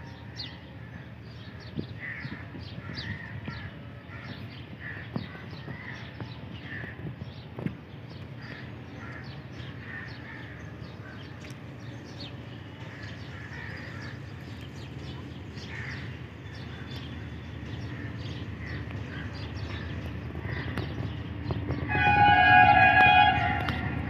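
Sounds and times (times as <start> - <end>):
distant diesel train rumble: 0.0 - 24.0
birds harsh calls: 8.4 - 24.0.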